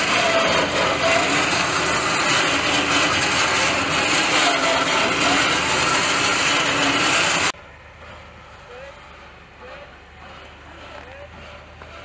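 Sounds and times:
tyres scraping and grinding on rock: 0.0 - 7.5
truck engine running: 0.0 - 12.0.

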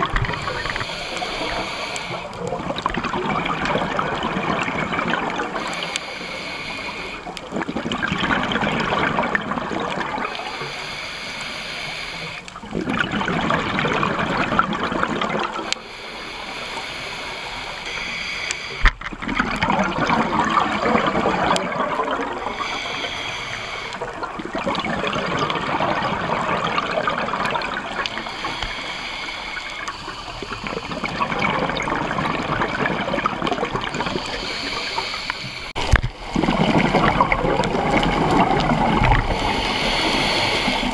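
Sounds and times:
exhaled bubbles gurgling: 0.0 - 40.9
regulator inhalations: 0.3 - 2.6, 5.5 - 7.4, 10.3 - 12.5, 15.6 - 19.0, 22.3 - 24.3, 28.0 - 31.3, 33.9 - 36.6, 38.8 - 40.9.

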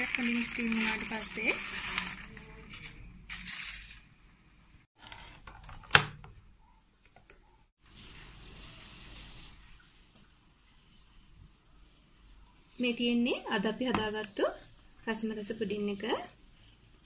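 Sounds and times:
rustling and handling noise: 0.0 - 4.2.

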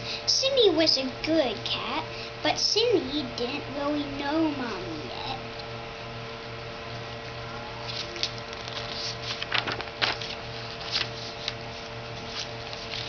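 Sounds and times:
paper rustling and crinkling: 7.8 - 13.0.

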